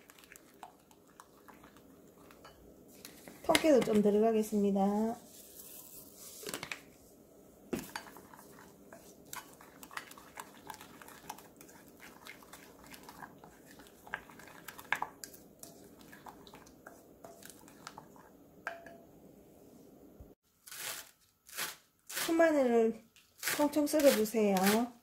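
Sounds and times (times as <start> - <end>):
spoon tapping glass bowl: 18.6 - 19.1.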